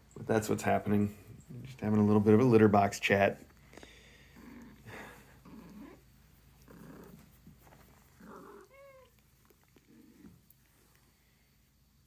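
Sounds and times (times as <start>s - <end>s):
cat meowing: 8.2s - 9.2s.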